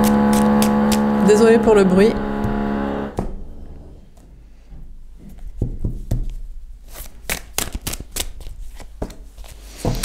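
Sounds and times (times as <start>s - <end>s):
cards riffling slaps and flicks: 6.9s - 10.0s.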